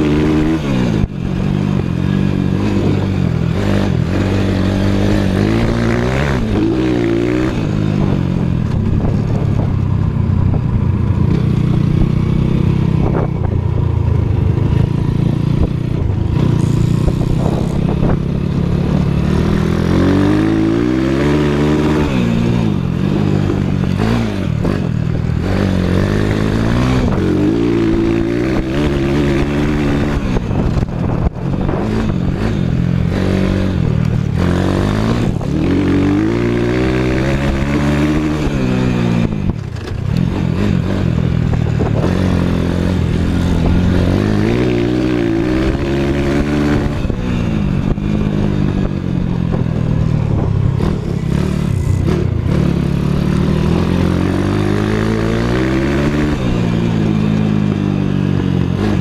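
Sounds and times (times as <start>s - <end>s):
motorbike engine revving: 0.0s - 59.0s.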